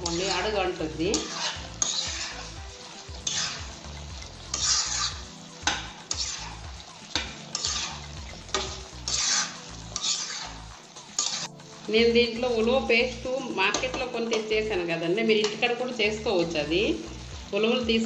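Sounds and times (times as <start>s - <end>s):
gravy sizzling: 0.0s - 18.0s
spatula clicking against pan: 7.1s - 7.8s.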